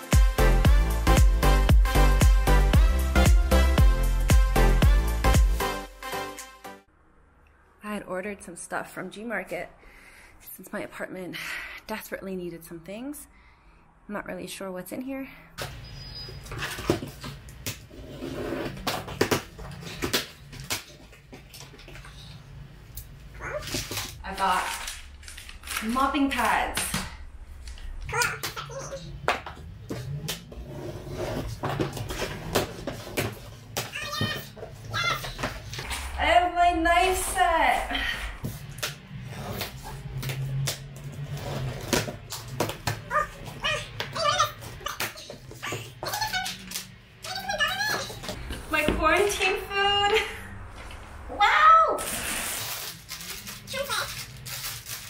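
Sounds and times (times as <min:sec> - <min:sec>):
packing tape and cardboard ripping: 0:23.5 - 0:26.9, 0:52.0 - 0:55.0.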